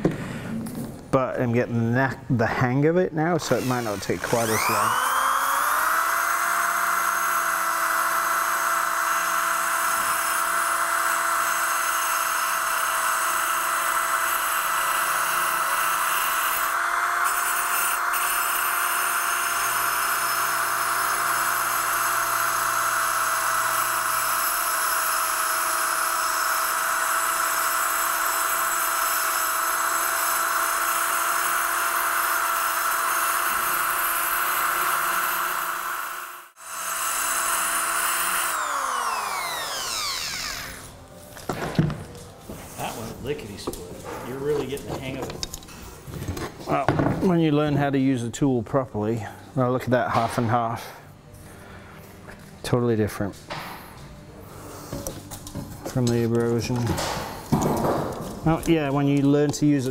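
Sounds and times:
electric drill running: 0:03.5 - 0:41.3.

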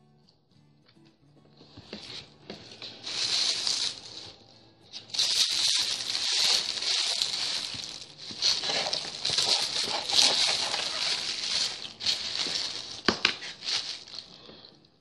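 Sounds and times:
food packaging crinkling: 0:02.8 - 0:04.4, 0:05.0 - 0:14.5.

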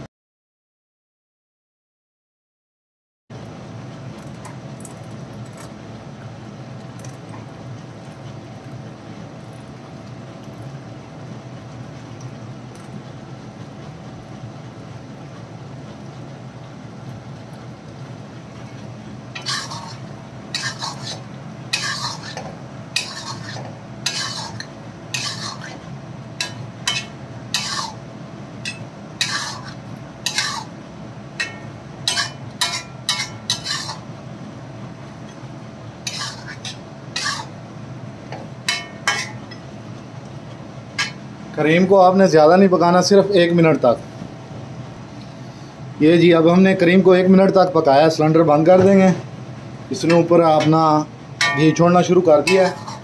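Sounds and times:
metal spatula scraping iron pan: 0:19.4 - 0:25.8, 0:26.4 - 0:28.0, 0:28.7 - 0:30.7, 0:31.4 - 0:34.0, 0:36.0 - 0:37.5, 0:38.7 - 0:39.4, 0:51.4 - 0:53.0.

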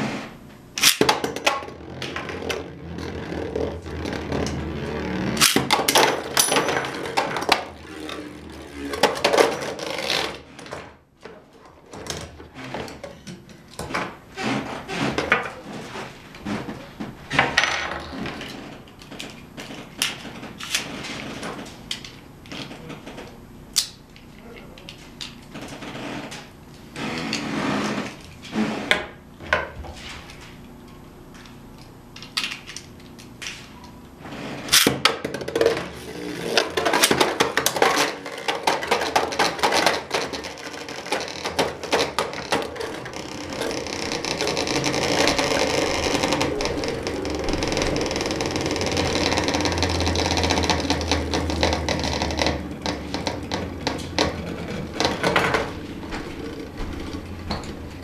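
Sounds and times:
top rattling whir on plastic: 0:34.7 - 0:57.8.

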